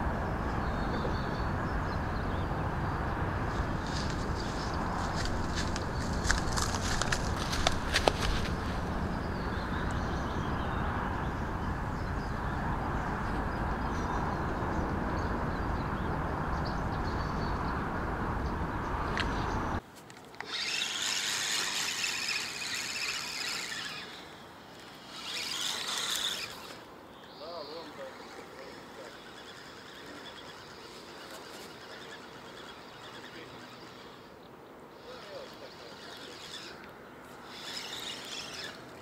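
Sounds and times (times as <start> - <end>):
wind rumble on microphone: 0.0 - 19.8
high-pitched chirring: 37.4 - 38.9.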